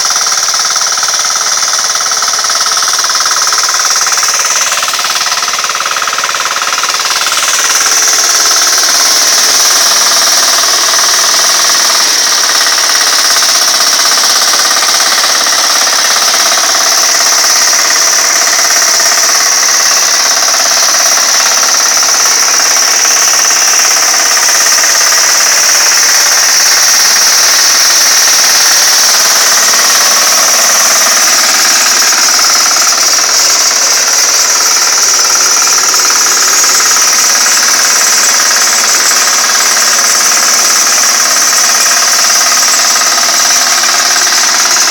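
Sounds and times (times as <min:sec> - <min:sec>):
rotary tiller working ground: 0:00.0 - 0:44.9
small engine running loud: 0:00.0 - 0:44.9.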